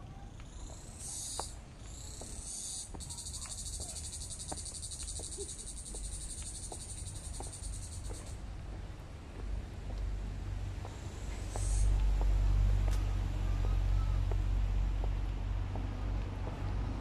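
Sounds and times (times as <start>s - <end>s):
insects buzzing: 0.4s - 8.4s, 10.9s - 12.0s
footsteps on concrete steps: 0.7s - 17.0s.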